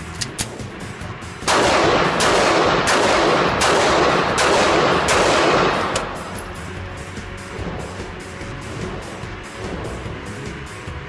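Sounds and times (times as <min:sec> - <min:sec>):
pistol shots echoing: 0:01.4 - 0:06.6.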